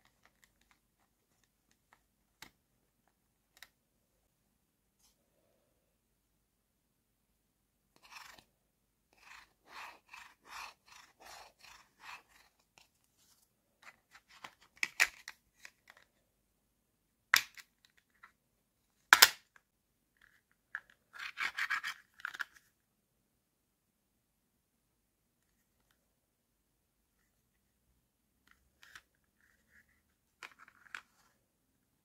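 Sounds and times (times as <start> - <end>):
plastic toy food rubbing: 9.1 - 12.8.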